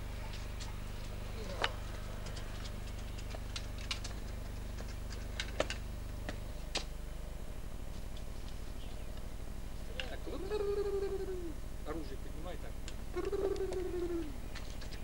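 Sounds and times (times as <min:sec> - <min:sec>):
steady low hum: 0:00.0 - 0:15.0
faint clicks and ticks: 0:00.2 - 0:05.8.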